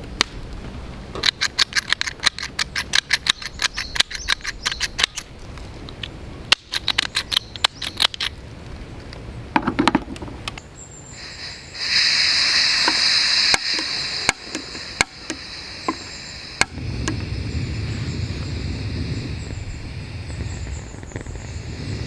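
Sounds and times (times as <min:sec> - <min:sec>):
gas burner roaring: 0:11.1 - 0:22.0
gas hissing: 0:11.1 - 0:22.0.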